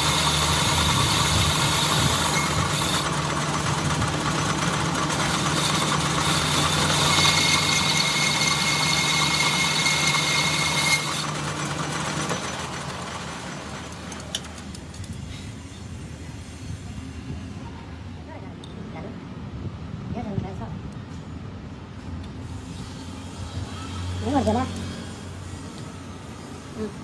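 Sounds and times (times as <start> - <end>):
high whine of cutting: 0.0 - 14.0
lathe spinning down: 0.0 - 14.3
metal lathe running: 0.0 - 14.6.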